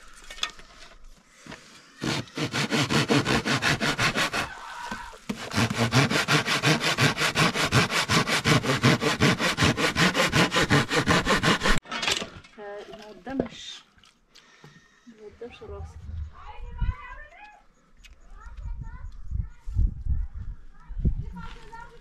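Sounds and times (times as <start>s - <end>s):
hand saw cutting wood: 2.0s - 4.6s, 5.3s - 11.8s.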